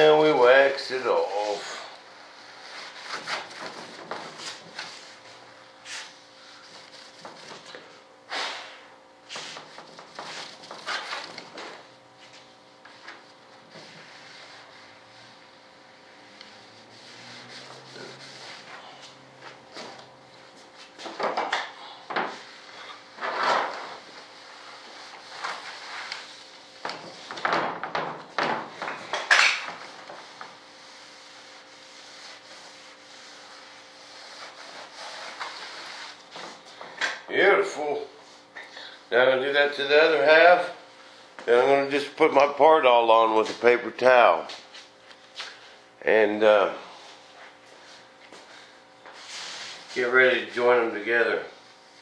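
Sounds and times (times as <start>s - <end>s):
paper towel swishing strokes: 0.0s - 8.7s, 9.3s - 21.1s, 22.3s - 27.4s, 29.7s - 36.7s, 46.9s - 50.3s
hand rubbing a mold surface: 13.0s - 19.9s.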